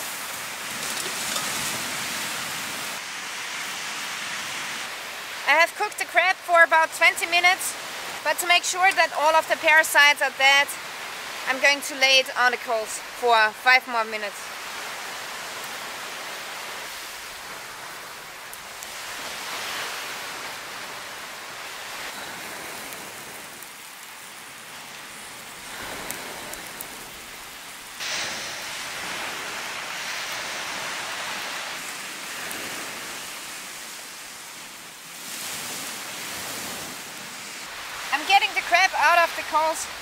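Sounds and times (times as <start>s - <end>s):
surf washing on beach: 0.0s - 40.0s.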